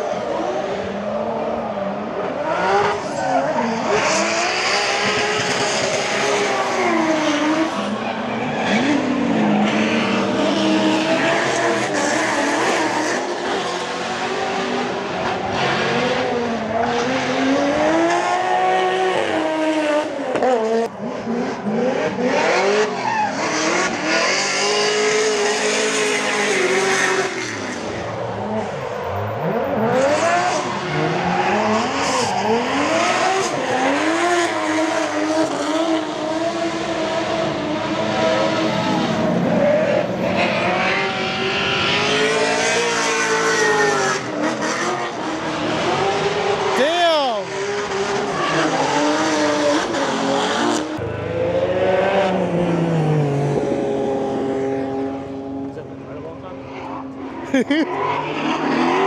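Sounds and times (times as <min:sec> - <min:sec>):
car engines revving: 0:00.0 - 0:59.0.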